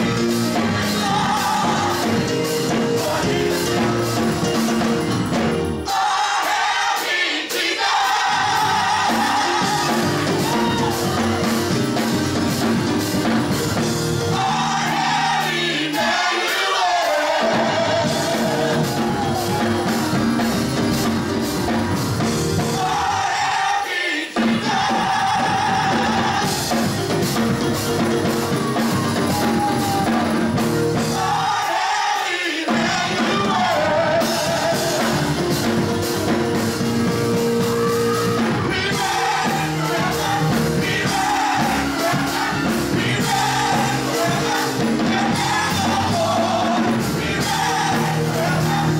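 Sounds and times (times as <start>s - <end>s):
gospel choir singing: 0.0s - 48.9s
instrumental backing with beat: 0.0s - 48.9s.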